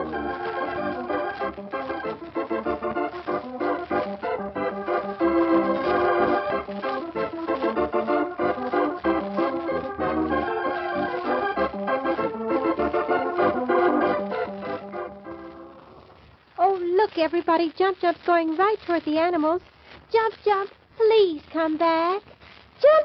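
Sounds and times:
organ music: 0.0s - 16.2s.

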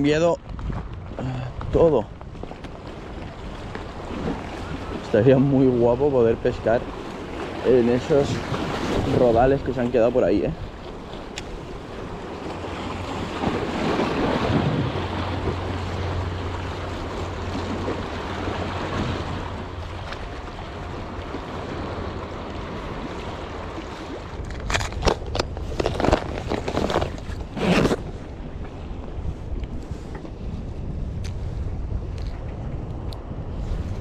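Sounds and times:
wind on microphone: 0.0s - 34.0s
small waves washing on rocks: 1.6s - 27.6s
handling clicks and rustles: 24.4s - 28.1s.

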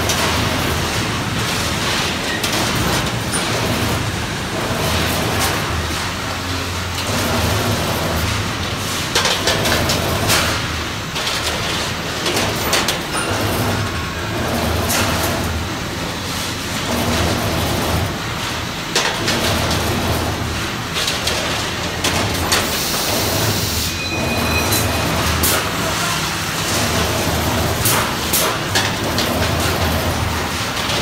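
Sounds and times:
bending machine humming: 11.9s - 31.0s.

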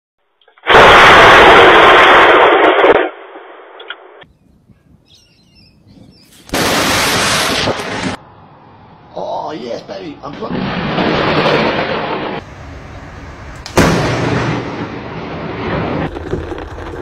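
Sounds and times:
thunder cracks: 0.7s - 3.6s, 6.5s - 8.2s, 10.3s - 17.0s.

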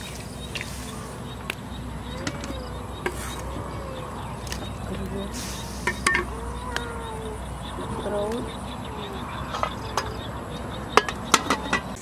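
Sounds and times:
faint soft calls: 0.6s - 11.0s
cooking clicks and knocks: 10.9s - 12.0s.

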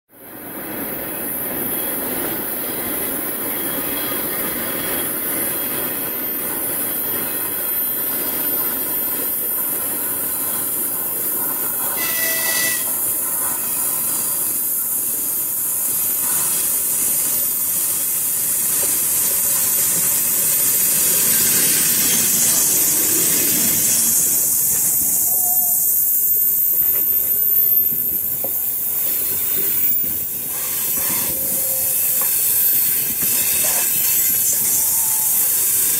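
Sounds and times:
train wheels rumbling on track: 0.1s - 35.9s
short high tone: 12.0s - 13.0s.

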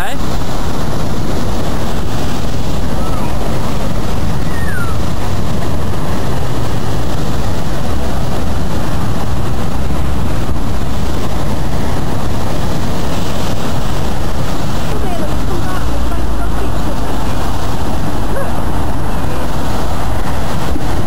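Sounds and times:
storm waves breaking: 0.0s - 21.0s.

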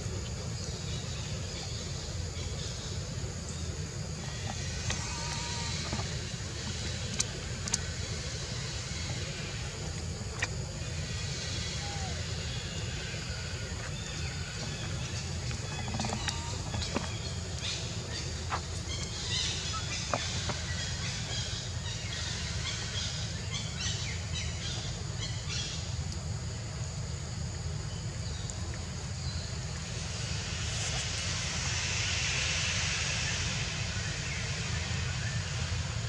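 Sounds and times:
hiss: 28.5s - 36.0s.

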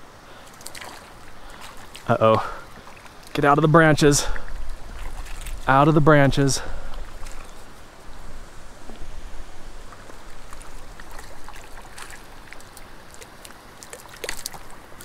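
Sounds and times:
steady background hiss: 0.0s - 15.0s
fish splashing in water: 0.4s - 3.3s, 4.4s - 5.6s, 9.9s - 15.0s.

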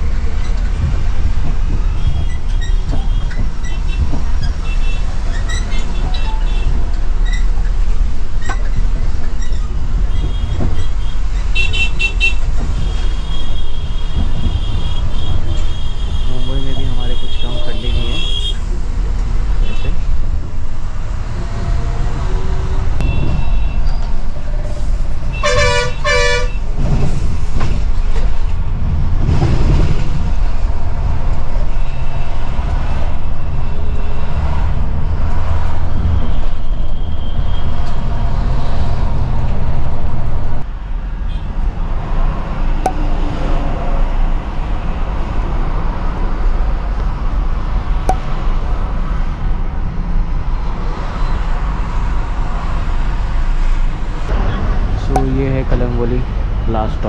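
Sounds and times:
coach engine rumble: 0.0s - 40.7s
road noise: 0.0s - 57.0s
vehicle horn blasts: 25.3s - 26.6s.

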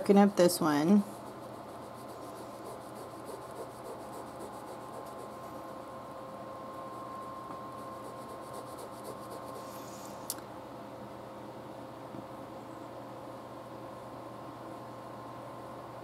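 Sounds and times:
pen scratching on paper: 1.2s - 5.7s, 7.8s - 9.7s.

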